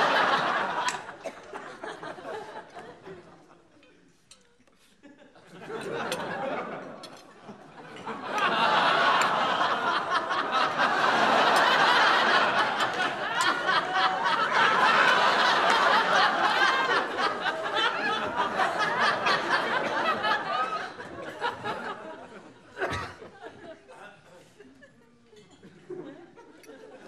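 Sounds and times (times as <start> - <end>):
audience laughing: 0.0 - 3.7, 4.8 - 27.0.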